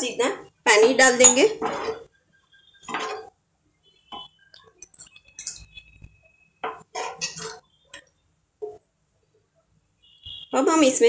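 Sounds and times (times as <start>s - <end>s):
utensils clinking against cookware: 2.8s - 3.3s, 4.8s - 6.0s, 6.6s - 8.1s.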